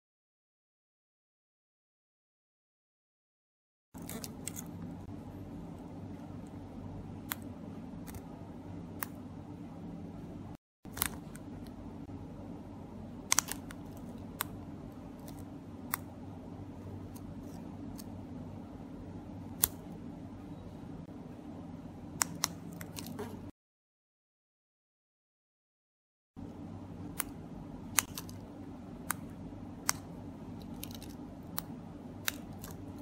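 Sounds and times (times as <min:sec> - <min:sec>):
low background hum: 0:04.0 - 0:23.5, 0:26.4 - 0:33.0.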